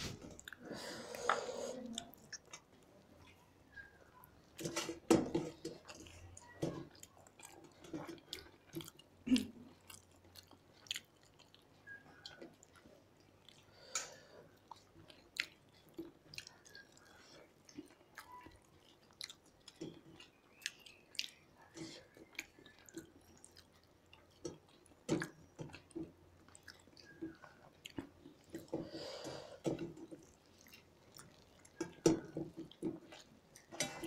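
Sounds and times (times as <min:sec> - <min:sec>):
chewing and mouth sounds: 0:00.2 - 0:34.0.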